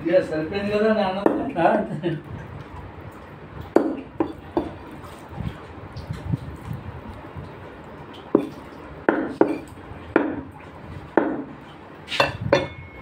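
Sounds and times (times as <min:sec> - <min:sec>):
cleaver chopping chicken: 0:09.1 - 0:10.5.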